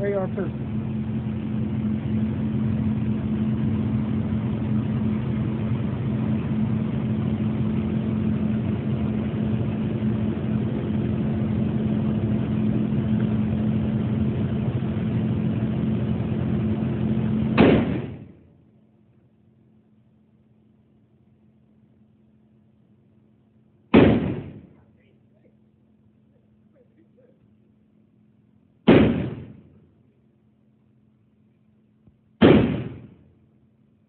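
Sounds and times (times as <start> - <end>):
loud gunshot: 17.5 - 18.4, 23.9 - 24.8, 28.8 - 29.8, 32.4 - 33.2.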